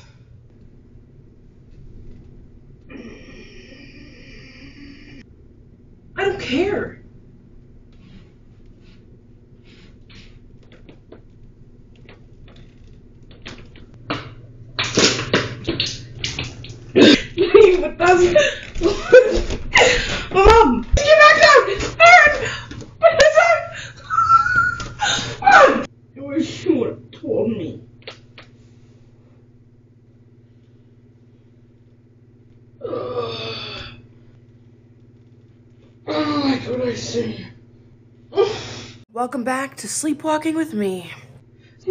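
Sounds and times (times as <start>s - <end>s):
steady low hum: 0.0s - 21.1s
person making short voiced sound: 39.2s - 41.3s.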